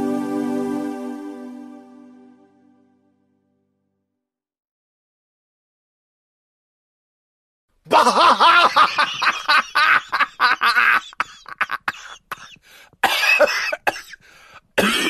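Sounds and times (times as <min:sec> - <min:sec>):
person laughing hard: 0:07.9 - 0:12.1
coughing laughter: 0:07.9 - 0:14.2, 0:14.8 - 0:15.0.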